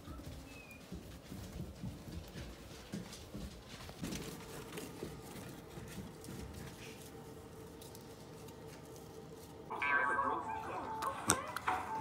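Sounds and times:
footsteps on carpeted stairs: 0.0 - 9.5
dog paws pattering on stairs: 0.0 - 9.6.

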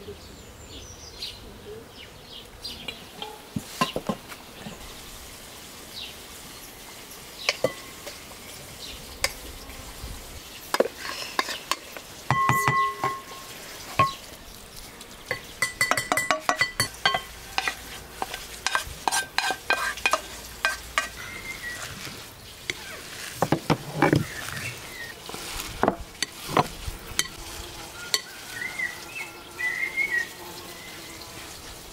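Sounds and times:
spoon scraping a glass bowl: 10.8 - 14.2, 15.6 - 21.2
glass bowl ringing: 12.3 - 14.2, 15.6 - 17.3.

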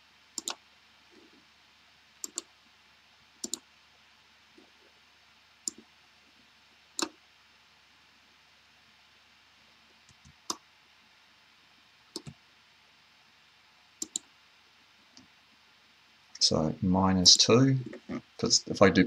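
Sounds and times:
faint steady hiss: 0.0 - 19.0
computer mouse button clicking: 0.4 - 0.6, 2.2 - 2.5, 3.4 - 3.6, 12.2 - 12.4, 14.0 - 14.2.

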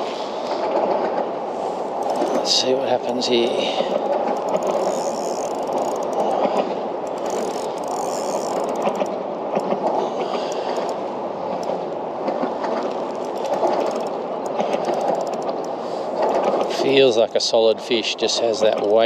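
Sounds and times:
fishing reel whirring and clicking: 2.0 - 2.6, 4.0 - 11.8, 12.9 - 16.6.

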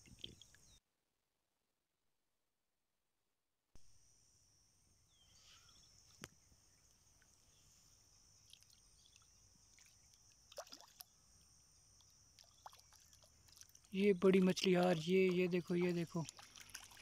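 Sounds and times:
stick in muddy water: 12.4 - 17.0.

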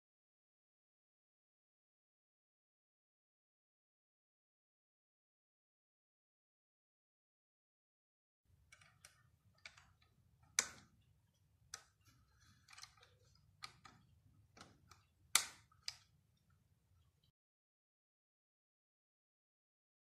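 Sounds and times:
small plastic clicks and knocks: 8.6 - 16.2
plastic parts snapping: 8.7 - 11.0, 11.7 - 16.1.

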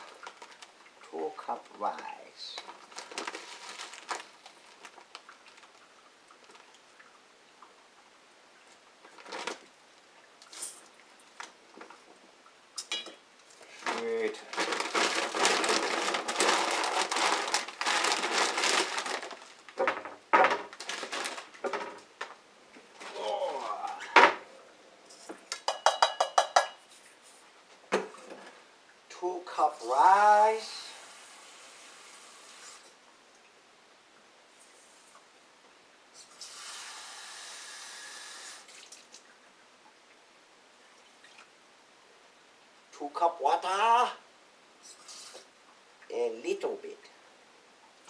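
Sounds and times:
plastic bag crinkling: 0.0 - 0.8, 2.5 - 6.7, 9.1 - 9.7, 13.6 - 22.4
water drips: 3.9 - 14.1, 38.6 - 41.6.

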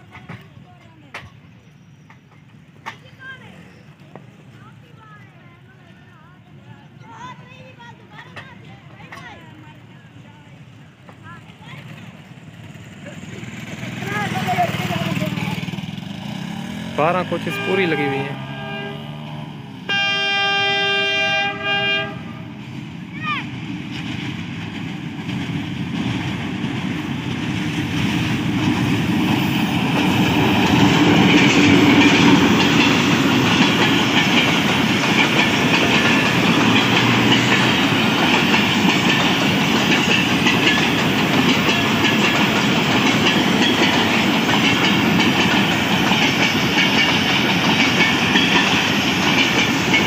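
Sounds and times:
train wheels clicking over rail joints: 0.0 - 4.4, 7.5 - 9.9, 22.5 - 50.0
diesel locomotive engine: 0.0 - 50.0.

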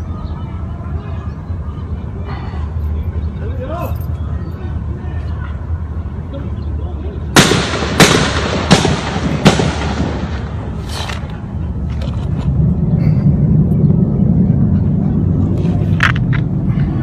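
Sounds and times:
gunshots with echo: 7.4 - 10.7
low rumble: 7.4 - 17.0.

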